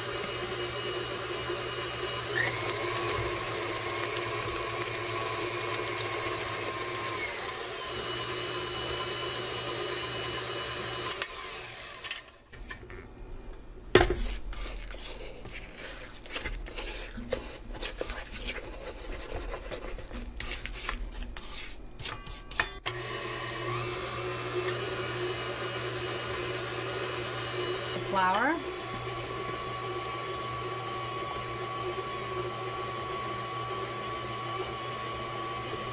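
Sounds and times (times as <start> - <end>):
stand mixer motor running: 0.0 - 12.1, 22.9 - 35.9
spatula scraping metal bowl: 14.1 - 22.8.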